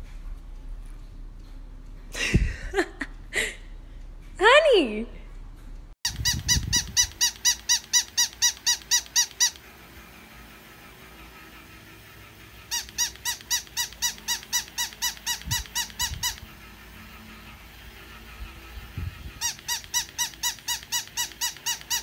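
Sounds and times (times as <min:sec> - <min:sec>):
plush toy squeaking: 0:06.1 - 0:09.7, 0:12.6 - 0:16.6, 0:19.2 - 0:22.0.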